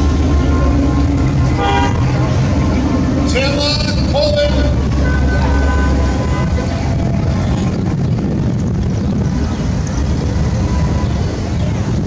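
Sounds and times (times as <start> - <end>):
cars driving slowly past: 0.0 - 12.0.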